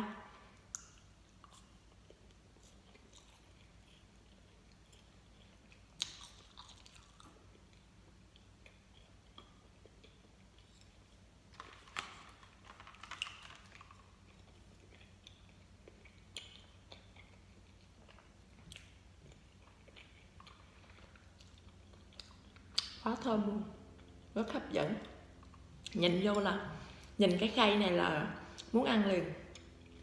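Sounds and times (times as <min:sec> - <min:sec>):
chewing gummy candy: 0:00.5 - 0:24.4.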